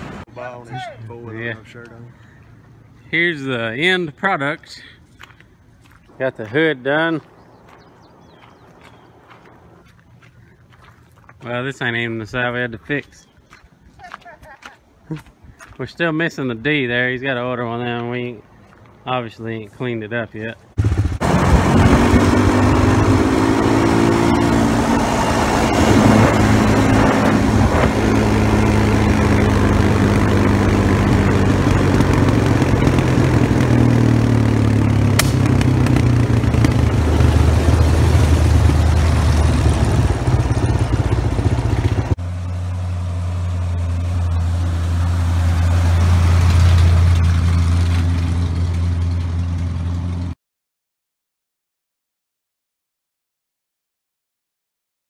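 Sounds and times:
deep exhaust rumble: 20.7s - 50.4s
truck engine driving past: 20.8s - 50.4s.

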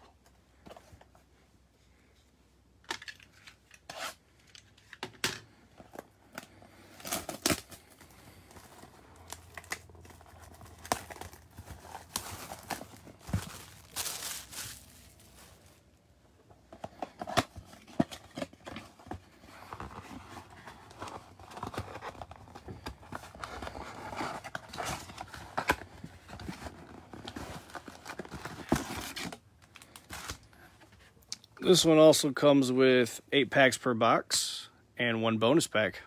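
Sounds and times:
rustling and crinkling: 3.0s - 31.3s.

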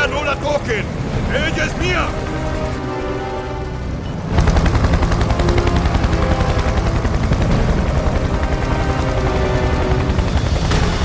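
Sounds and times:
dramatic film score: 0.0s - 11.0s
rapid machine-gun fire: 4.3s - 8.8s.

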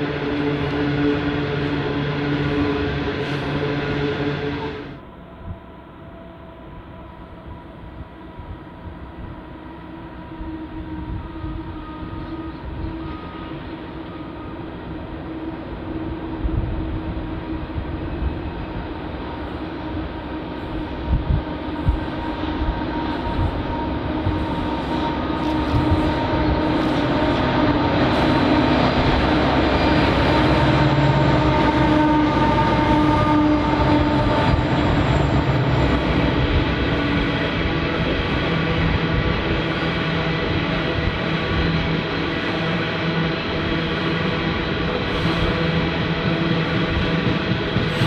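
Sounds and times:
diesel locomotive drone: 0.0s - 48.0s
train low rumble: 0.0s - 48.0s.

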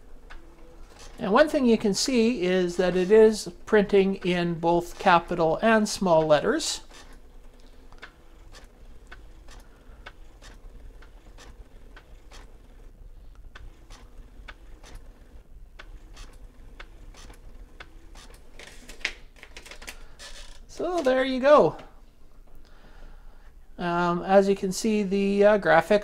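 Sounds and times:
thermal printer ticking: 0.0s - 18.6s.

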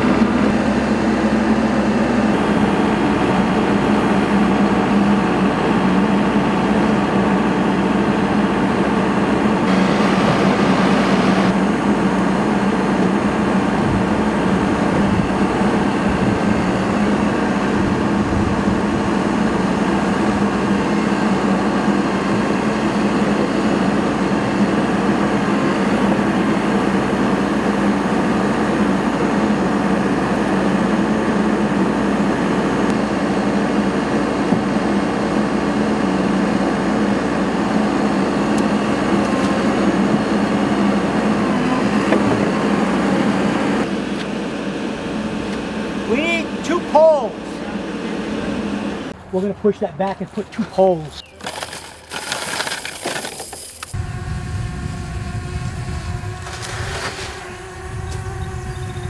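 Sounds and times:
diesel engine running: 0.0s - 56.8s.

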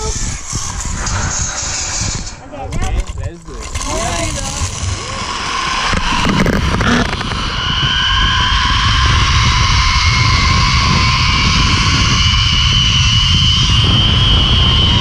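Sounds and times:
zip-line pulleys whirring: 0.0s - 2.5s
wind buffeting microphone: 0.0s - 15.0s.

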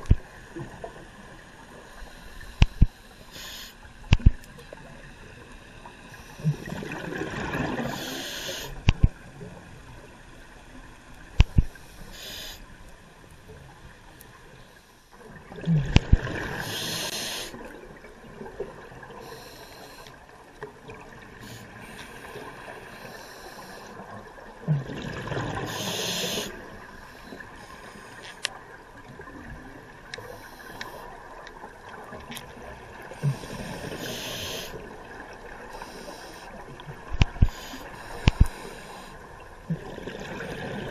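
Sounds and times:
scuba breathing through regulator: 2.0s - 3.8s, 7.8s - 8.8s, 11.6s - 12.6s, 16.5s - 17.6s, 19.2s - 20.2s, 21.4s - 24.0s, 25.6s - 28.4s, 33.2s - 34.9s, 35.7s - 36.6s, 37.3s - 39.2s.

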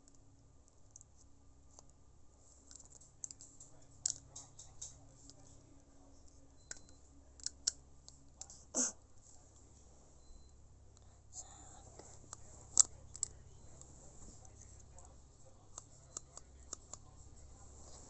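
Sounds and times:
faint clicks and taps: 2.6s - 5.6s, 12.0s - 17.2s.

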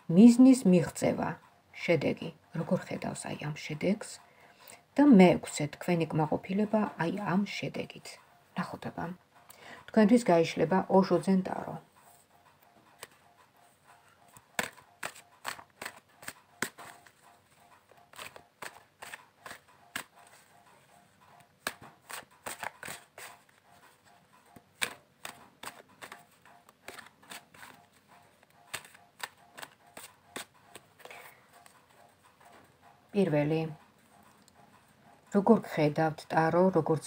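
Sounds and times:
cards being shuffled: 14.6s - 17.2s, 17.9s - 20.5s, 21.6s - 24.1s, 24.8s - 31.8s.

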